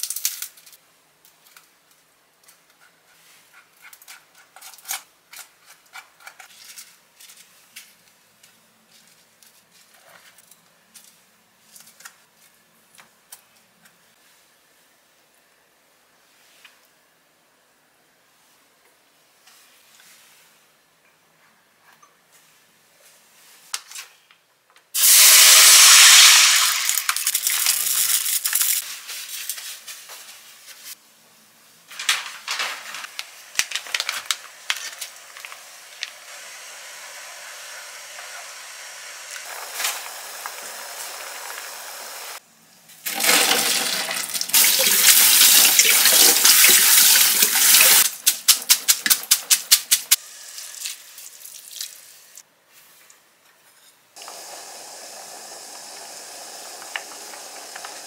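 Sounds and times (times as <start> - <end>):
water running: 43.1 - 48.0, 54.2 - 58.0.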